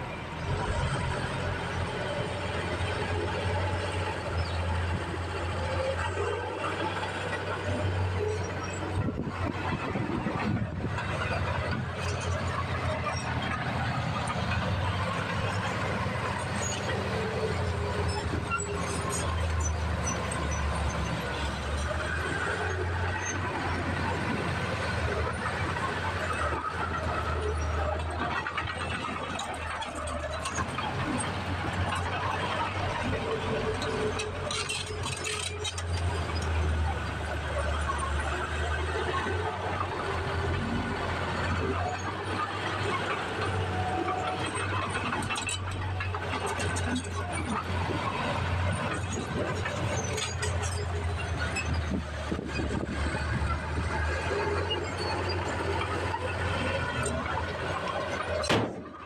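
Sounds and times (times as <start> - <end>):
diesel engine humming: 0.0 - 59.0
metal squeaks and clinks: 16.3 - 23.4, 26.2 - 38.8, 41.3 - 59.0.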